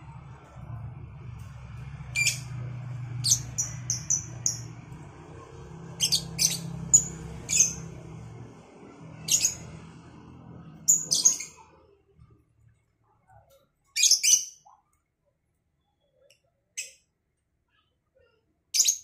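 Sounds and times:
low hum: 0.0s - 13.4s
lovebirds chirping and squawking: 1.4s - 11.8s, 13.8s - 15.0s, 18.8s - 19.0s.

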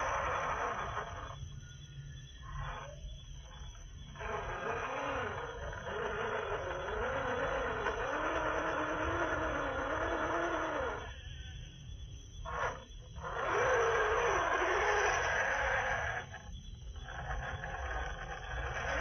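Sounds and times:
electric motor and gears whining: 0.0s - 19.0s.

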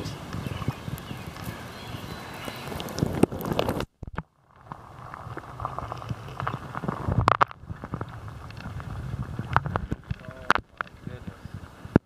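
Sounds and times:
creek water splashing: 0.0s - 12.0s
low steady rumble: 4.3s - 12.0s.

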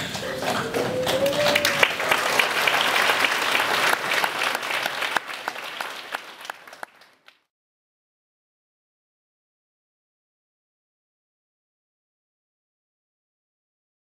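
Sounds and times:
children applauding: 0.0s - 7.5s.

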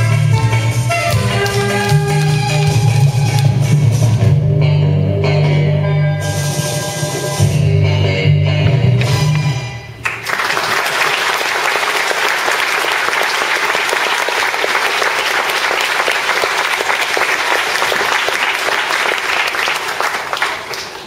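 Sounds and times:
audience applauding: 1.1s - 3.6s, 10.0s - 21.0s.

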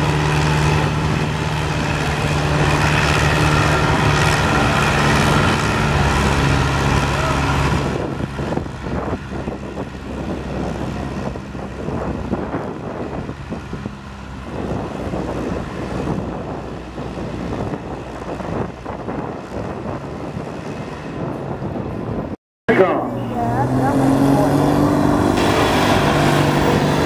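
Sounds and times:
tractor engine at full throttle: 0.0s - 27.0s.

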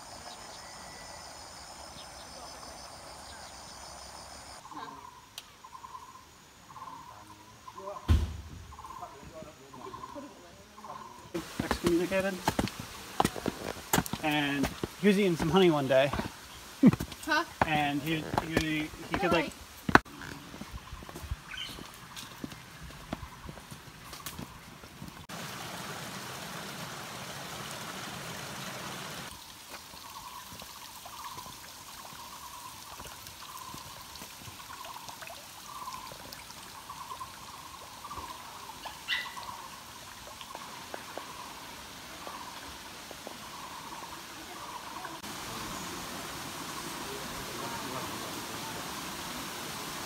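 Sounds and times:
water trickling: 21.7s - 50.0s.

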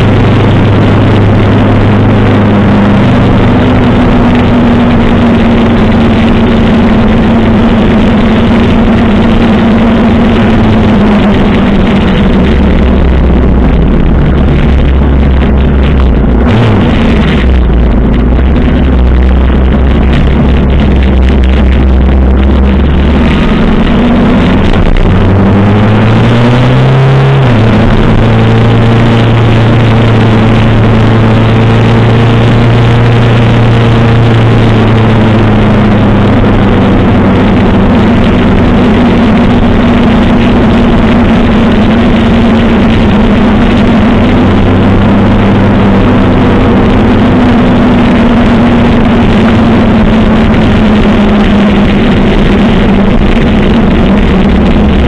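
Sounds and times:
motorcycle engine accelerating: 0.0s - 55.0s
wind rush over microphone: 0.0s - 55.0s.

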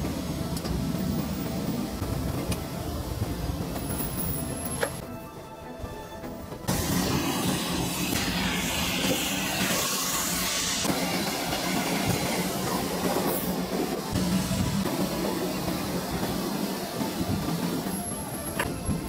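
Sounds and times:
background music: 0.2s - 8.1s
hiss: 6.7s - 19.0s
steady machine noise: 6.7s - 19.0s.

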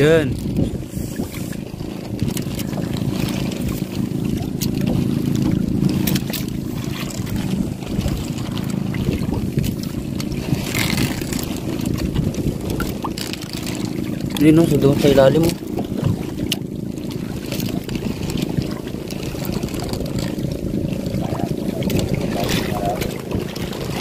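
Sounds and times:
water splashing against boat: 0.0s - 24.0s
small engine droning: 1.7s - 14.9s.

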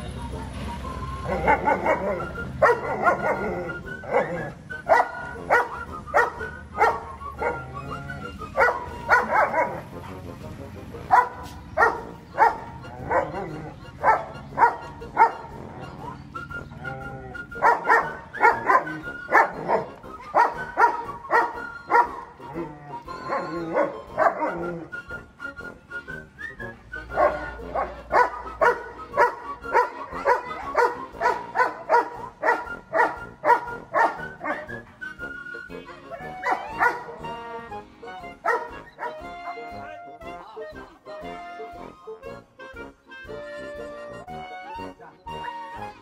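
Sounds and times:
dog whining: 1.1s - 10.0s, 11.1s - 25.2s, 27.1s - 34.8s, 35.4s - 37.7s, 38.4s - 39.7s
dog barking sharply: 11.1s - 13.3s.

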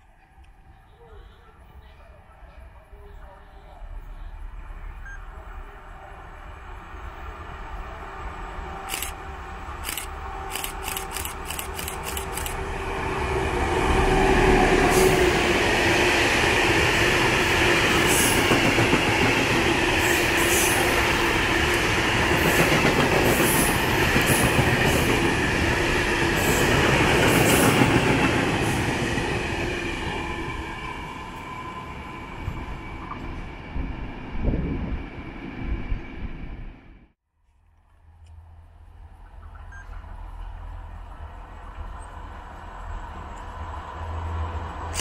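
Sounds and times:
freight train wheels rumbling: 5.7s - 36.7s.

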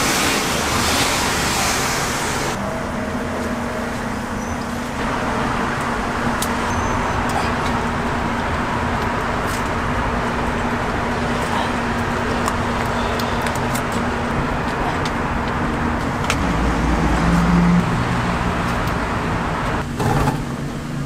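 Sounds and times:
traffic hiss: 0.0s - 2.6s
road traffic hum: 0.0s - 21.0s.

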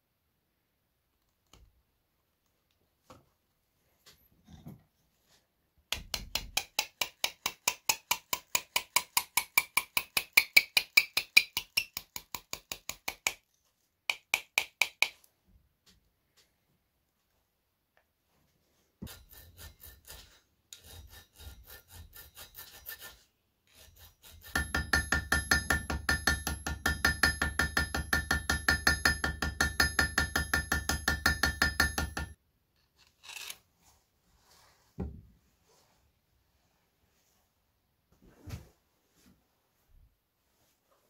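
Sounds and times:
small hammer tapping on metal: 5.9s - 13.4s, 14.1s - 15.2s, 24.5s - 32.4s.

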